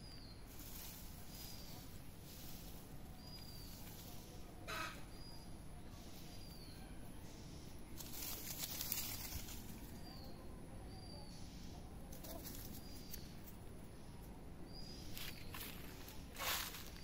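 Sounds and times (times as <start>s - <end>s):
rustling in dry grass: 0.0s - 4.8s, 6.0s - 10.3s, 14.7s - 17.0s
small bird chirping: 0.0s - 17.0s.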